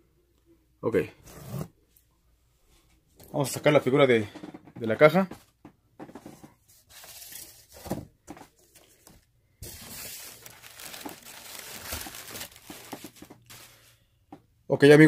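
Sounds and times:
plastic packing crinkling: 8.7s - 14.0s.

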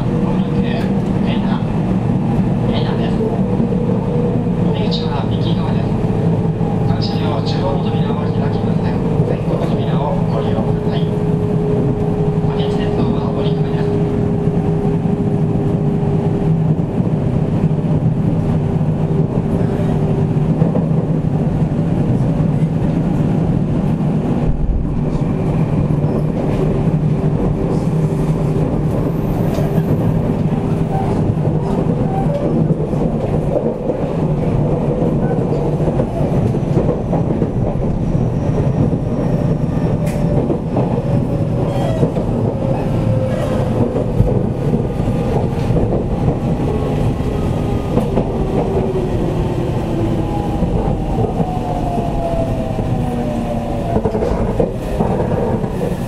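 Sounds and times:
train body rumble: 0.0s - 56.0s
train wheels on rail: 0.0s - 56.0s.

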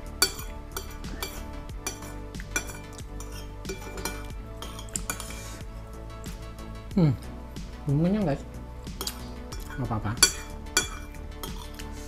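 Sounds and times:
background music: 0.0s - 12.0s
spoon clinking against bowl: 0.2s - 5.4s, 9.0s - 11.8s.

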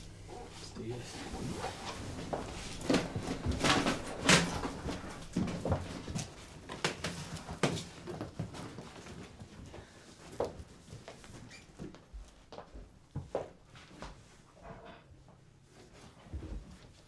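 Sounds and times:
cardboard rustling and scraping: 0.3s - 11.3s.

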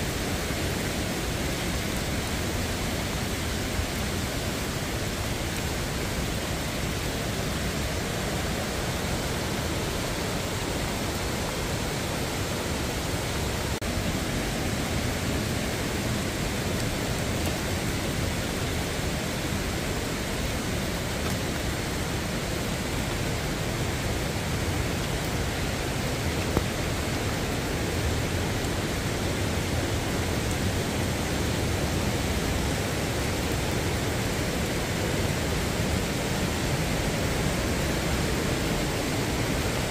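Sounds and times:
stream rushing: 0.0s - 39.9s.

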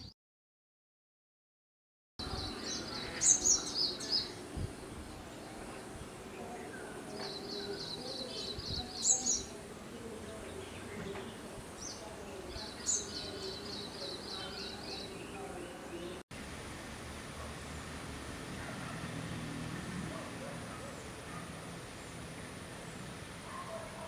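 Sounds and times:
bird chirping in rapid runs: 2.2s - 16.2s
outdoor background noise: 2.2s - 24.0s.

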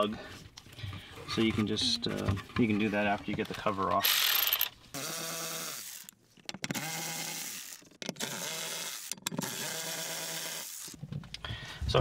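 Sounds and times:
power tool motor whine: 4.0s - 6.1s, 6.7s - 11.0s.

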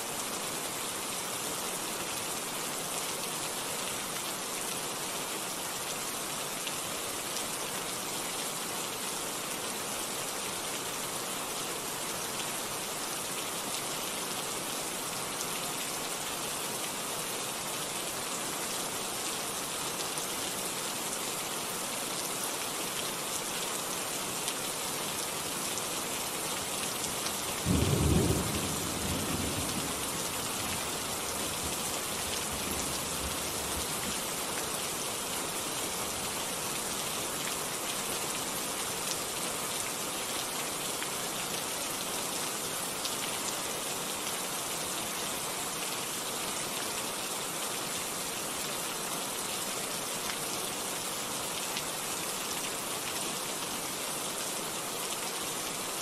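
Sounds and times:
steady rain: 0.0s - 56.0s.

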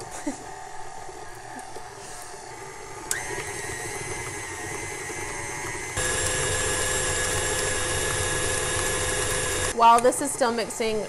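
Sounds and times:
stand mixer motor whining: 2.4s - 9.8s.

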